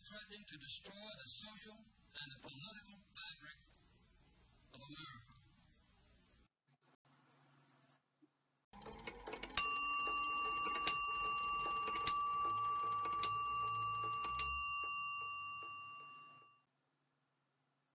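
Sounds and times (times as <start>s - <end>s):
clock mechanism clicks: 8.8s - 16.3s
clock bell striking: 8.8s - 16.5s.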